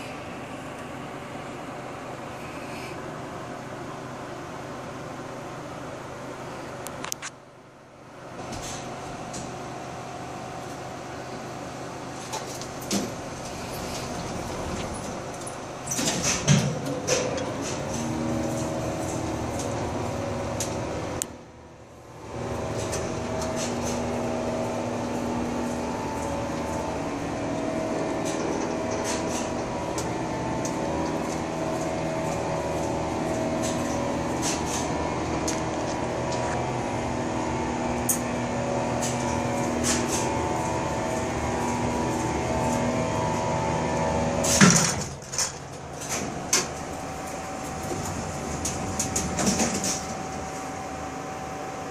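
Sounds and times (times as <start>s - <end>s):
elevator machine hum: 0.0s - 51.9s
loud clunk: 44.4s - 45.6s.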